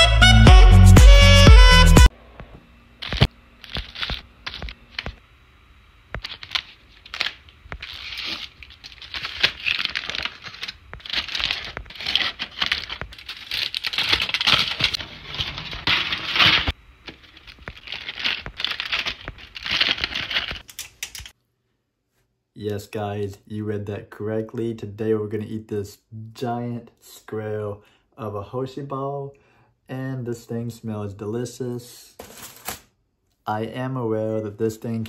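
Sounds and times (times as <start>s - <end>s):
foil wrapper crinkling and tearing: 3.0s - 5.2s, 6.2s - 21.3s.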